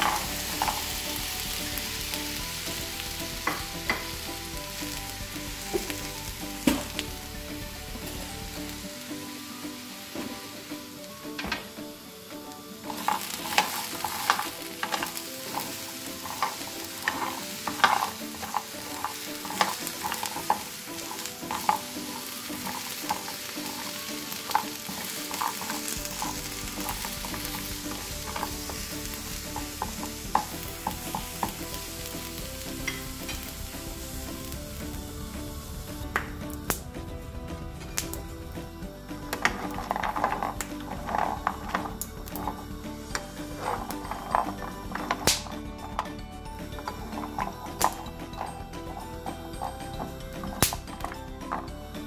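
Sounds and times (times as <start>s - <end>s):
chestnuts clattering in a pan: 0.0s - 52.0s
sizzling hiss: 0.0s - 52.0s.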